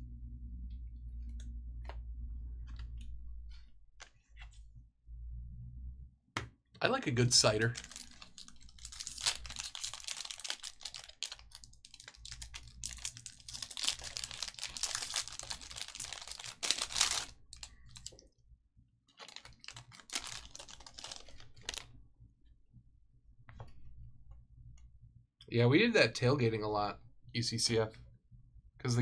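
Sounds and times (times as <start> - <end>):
cards rustling and flicking: 7.5 - 18.1.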